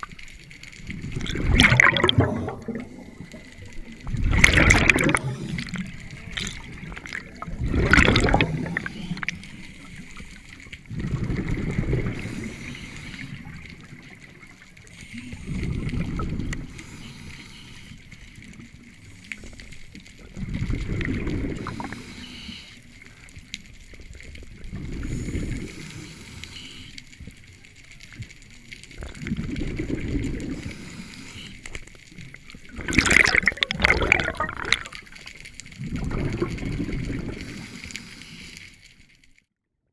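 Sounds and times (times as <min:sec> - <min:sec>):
faint water hiss: 0:00.0 - 0:39.4
diver exhaling bubbles: 0:00.9 - 0:09.4, 0:10.9 - 0:12.7, 0:15.3 - 0:16.7, 0:20.4 - 0:22.0, 0:29.0 - 0:30.7, 0:32.7 - 0:37.7.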